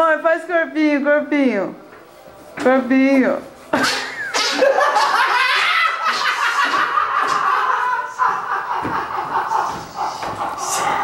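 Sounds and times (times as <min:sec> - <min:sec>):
people laughing: 0:03.8 - 0:11.0.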